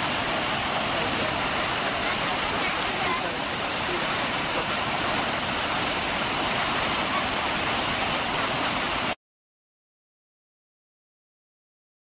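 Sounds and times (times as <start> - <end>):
waterfall rushing: 0.0 - 9.2.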